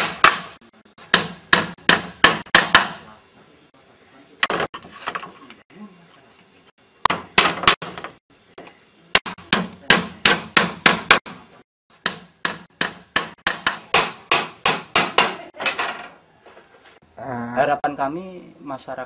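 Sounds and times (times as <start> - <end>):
hard hammering knocks: 0.0 - 3.0, 7.0 - 8.2, 9.2 - 11.4, 12.0 - 15.5.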